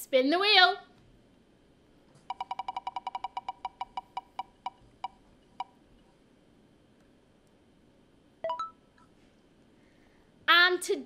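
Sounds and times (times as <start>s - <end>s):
prize wheel ticking: 2.3s - 5.7s.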